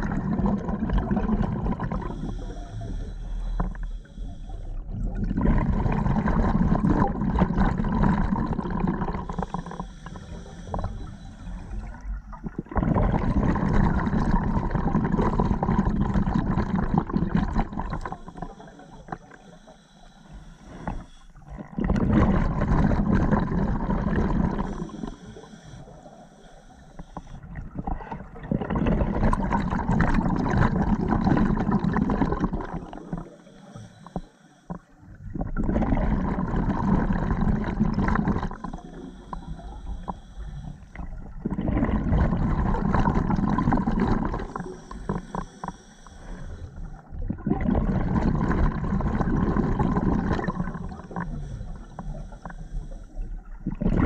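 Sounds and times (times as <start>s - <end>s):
exhaled bubbles rushing: 0.0s - 3.8s, 4.8s - 19.4s, 20.8s - 25.2s, 27.4s - 33.5s, 34.8s - 40.1s, 40.8s - 45.4s, 46.4s - 54.0s
regulator hiss on inhale: 1.8s - 4.9s, 9.0s - 12.2s, 15.4s - 21.5s, 23.1s - 27.6s, 32.4s - 35.0s, 37.0s - 41.1s, 42.4s - 47.1s, 48.6s - 53.4s.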